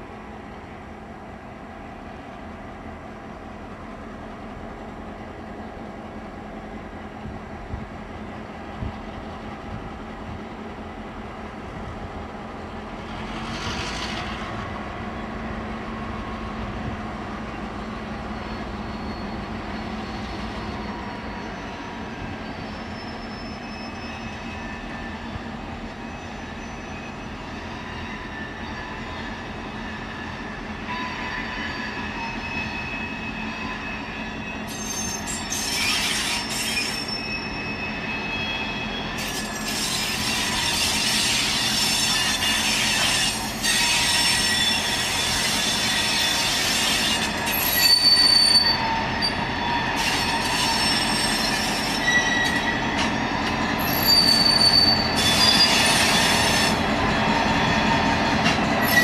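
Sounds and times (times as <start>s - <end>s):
diesel locomotive engines running: 0.0s - 59.0s
train wheels squealing: 12.6s - 59.0s.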